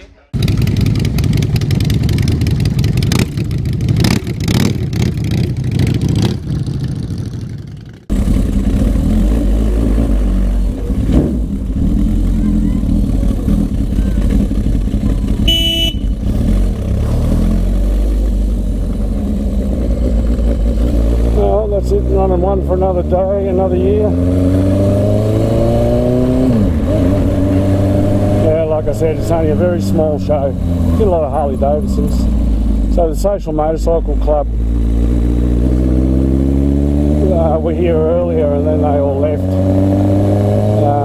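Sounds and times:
motorcycles revving: 0:00.0 - 0:41.0
motorcycle engine running: 0:00.2 - 0:41.0
horn toot: 0:15.4 - 0:16.3.

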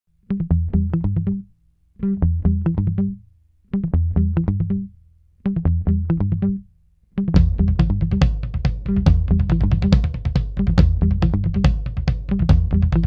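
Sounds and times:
intro music with bass line: 0:03.8 - 0:13.0.

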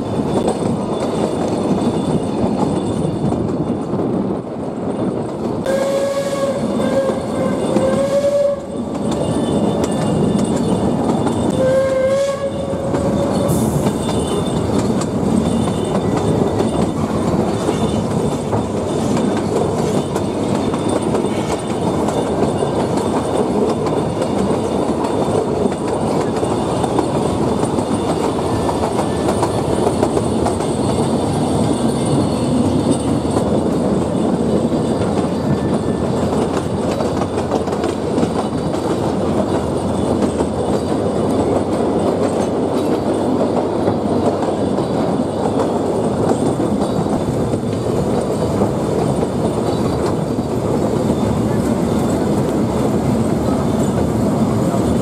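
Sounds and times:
train wheels clattering on rails: 0:00.0 - 0:55.0
steam train whistle: 0:05.7 - 0:08.9, 0:11.6 - 0:13.9.

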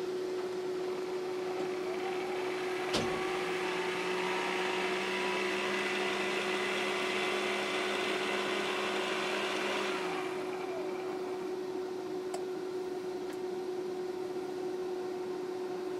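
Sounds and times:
steady electronic hum: 0:00.0 - 0:15.9
model locomotive motor whirring: 0:01.3 - 0:11.5.

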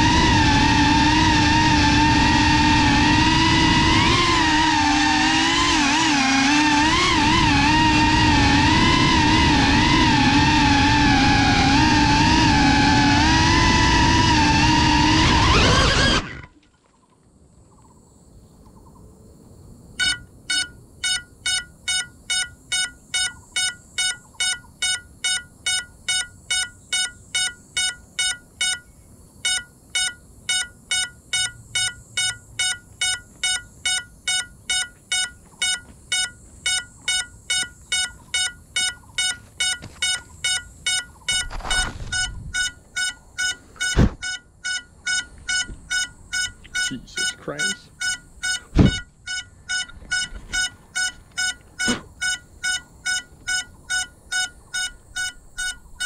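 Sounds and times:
drone motors whining: 0:00.0 - 0:16.6, 0:20.0 - 0:56.0
rustle: 0:15.3 - 0:22.3, 0:34.8 - 0:44.2
buzzer beeping: 0:20.0 - 0:56.0.

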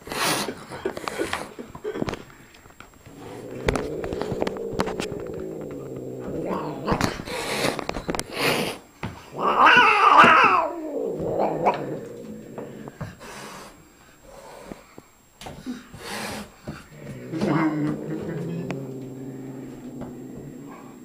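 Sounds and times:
cat hissing: 0:03.1 - 0:14.8, 0:16.0 - 0:21.0
cat yowling: 0:09.4 - 0:12.4.

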